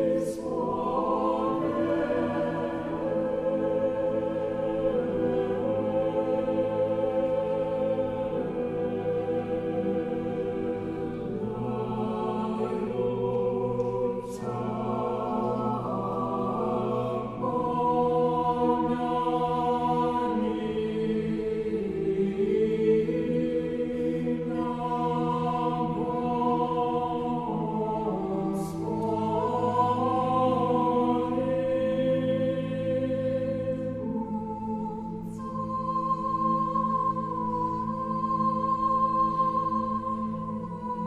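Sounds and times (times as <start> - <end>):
choir chanting a cappella: 0.0 - 41.0.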